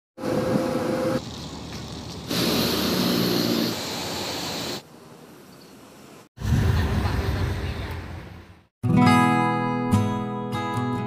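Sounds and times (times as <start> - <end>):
wind: 0.2 - 8.7.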